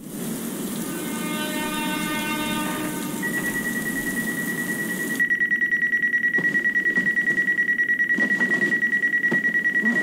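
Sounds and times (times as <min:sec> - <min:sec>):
steady high tone: 0:00.9 - 0:10.0
alarm clock pulsed beeping: 0:03.2 - 0:10.0.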